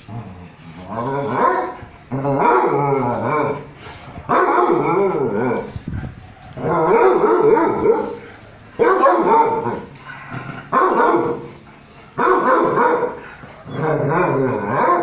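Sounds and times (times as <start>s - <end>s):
dogs whining and yipping: 4.3s - 15.0s.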